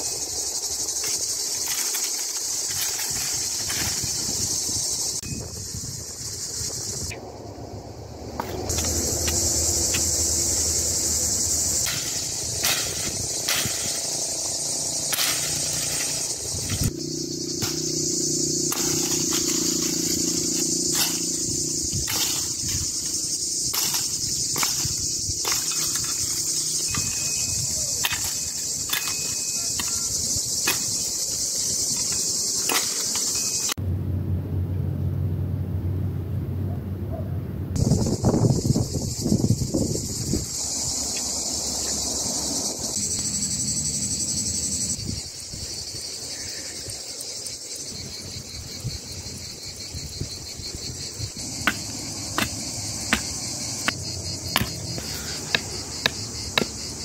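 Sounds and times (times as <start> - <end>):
insect chorus: 0.0 - 33.8, 37.1 - 57.0
axe chopping branches: 11.7 - 17.0, 17.6 - 31.0, 51.4 - 56.9.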